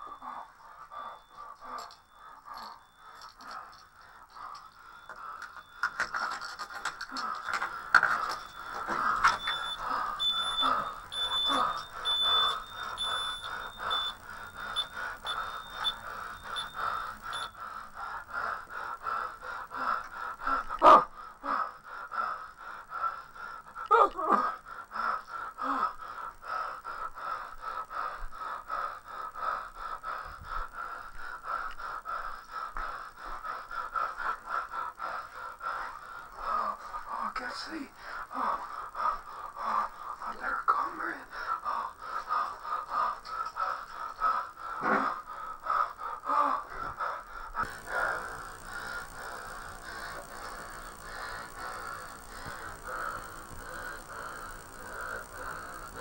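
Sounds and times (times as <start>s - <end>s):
alarm keypad beeping: 8.0s - 17.6s.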